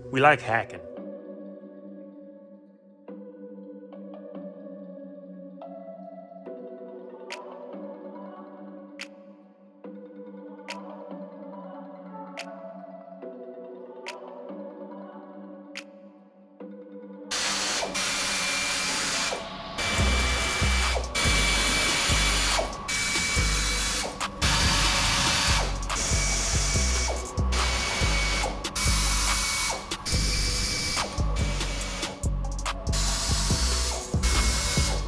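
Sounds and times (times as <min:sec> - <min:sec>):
pneumatic wrench whining: 0:17.3 - 0:32.2, 0:32.9 - 0:35.0.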